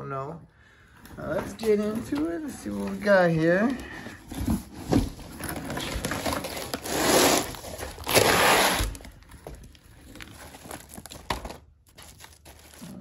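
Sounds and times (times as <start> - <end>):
plastic wrapping rustling: 1.2 - 13.0
cardboard rustling scrapes: 4.2 - 9.1.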